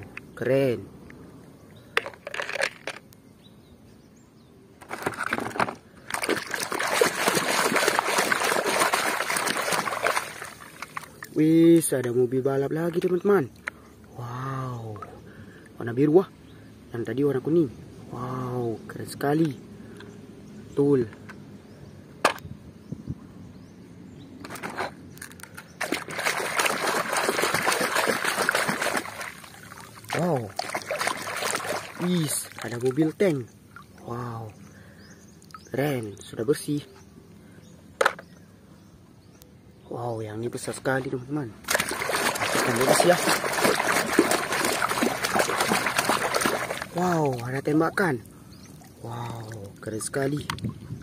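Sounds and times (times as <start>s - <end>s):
plastic toy clattering: 2.0s - 3.1s, 4.8s - 5.8s
hands splashing water: 6.1s - 11.4s, 25.8s - 33.1s, 41.6s - 47.6s.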